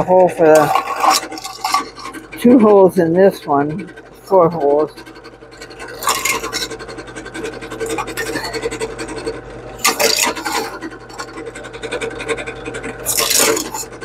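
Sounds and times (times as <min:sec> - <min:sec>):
drill bit scraping tin: 0:00.0 - 0:14.0
drill press motor hum: 0:00.0 - 0:14.0
harsh metal scraping: 0:00.0 - 0:14.0.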